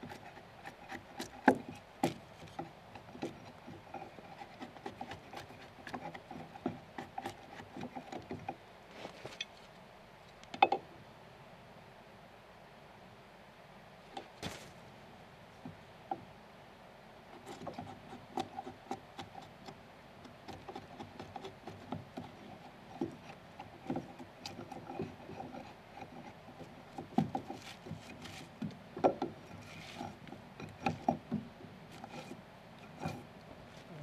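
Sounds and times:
chisel scraping wood: 0.0s - 8.5s, 17.4s - 19.8s, 20.5s - 33.3s
wood shavings rustling: 14.4s - 14.8s, 29.6s - 30.1s.

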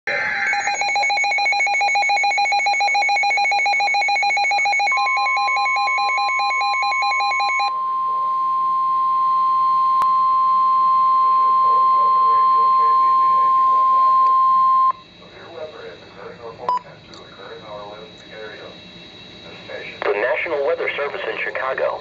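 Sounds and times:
rapid pulsing electronic beeps: 0.1s - 7.7s.

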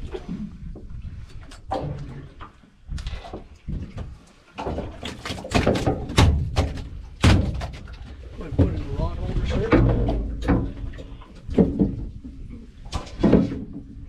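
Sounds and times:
fish thudding on boat deck: 4.6s - 8.8s.

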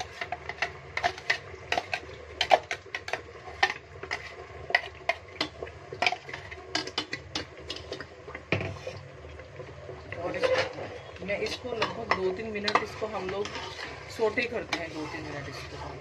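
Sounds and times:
low steady hum: 0.0s - 16.0s
spatula scraping blender jar: 12.6s - 16.0s.

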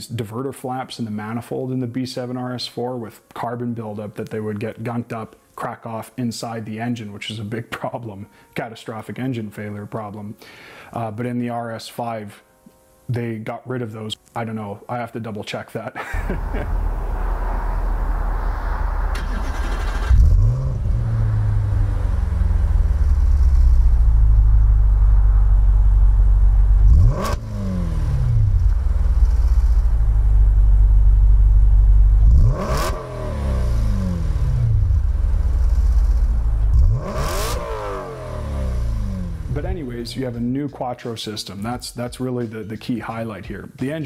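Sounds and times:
car engine revving hard: 16.3s - 25.4s, 26.7s - 30.4s, 32.1s - 39.6s.

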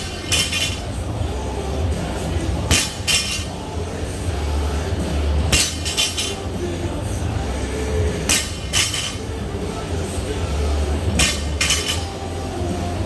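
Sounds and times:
metallic clink of plates: 0.0s - 0.9s, 5.6s - 6.4s, 8.3s - 9.2s, 11.2s - 12.2s
steady low hum: 0.0s - 13.0s
barbell dropped on rubber floor: 0.1s - 0.8s, 8.3s - 9.2s, 11.2s - 12.1s.

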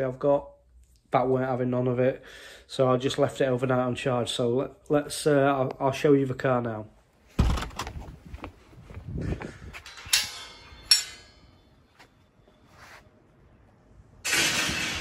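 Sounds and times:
footsteps: 7.3s - 13.2s
sharp metallic clinks: 9.7s - 11.9s.

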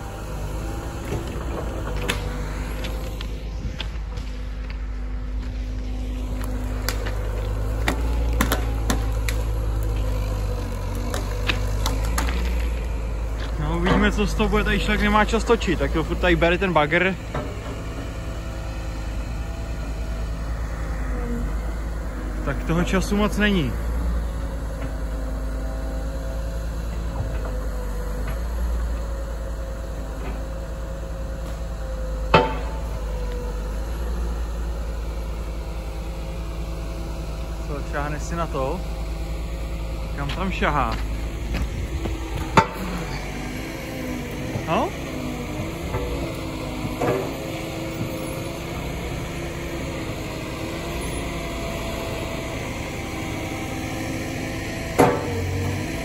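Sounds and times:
excavator diesel engine running: 0.0s - 56.0s
grapple knocking logs: 6.2s - 14.4s, 32.3s - 33.4s, 40.2s - 43.0s, 55.0s - 55.5s.

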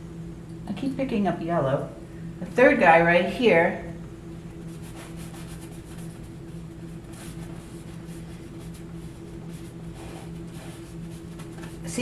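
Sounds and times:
low steady hum: 0.0s - 12.0s
paintbrush rubbing on canvas: 4.6s - 11.8s.

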